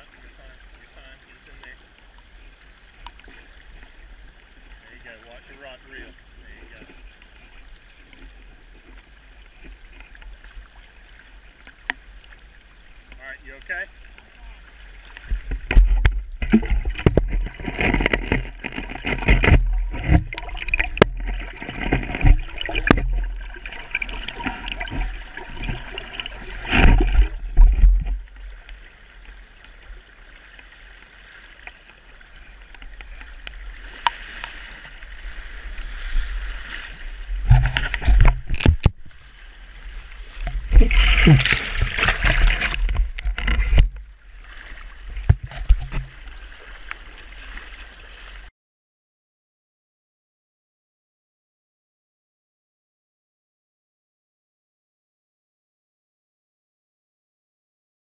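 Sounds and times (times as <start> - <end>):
river current rushing: 16.4 - 29.3, 30.1 - 48.3.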